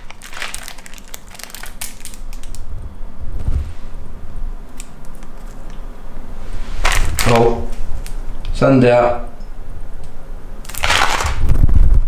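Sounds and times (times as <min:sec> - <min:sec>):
plastic packet crinkling: 0:00.0 - 0:02.7, 0:04.7 - 0:05.8, 0:06.8 - 0:08.2, 0:10.6 - 0:11.6.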